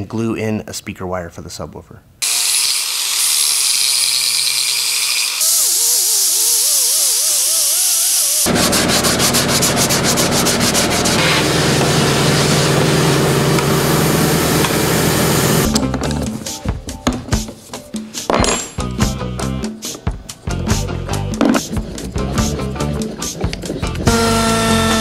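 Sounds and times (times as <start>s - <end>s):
air sander grinding: 2.2s - 15.7s
shop vacuum running: 2.2s - 15.8s, 24.1s - 25.0s.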